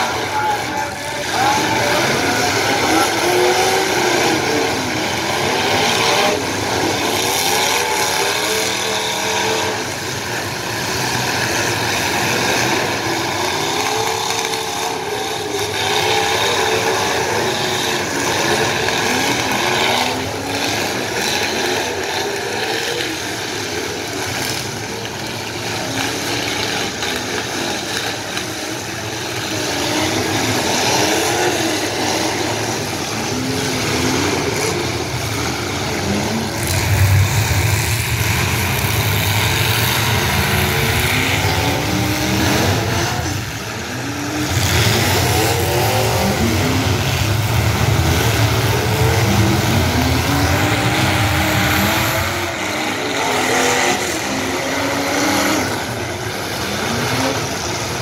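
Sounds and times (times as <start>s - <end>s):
car engines revving: 0.0s - 58.0s
low rumble: 36.4s - 41.0s.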